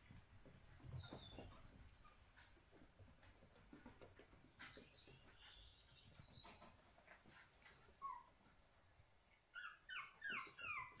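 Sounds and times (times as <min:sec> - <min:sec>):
puppy whimpering: 0:08.0 - 0:08.4, 0:09.5 - 0:11.0.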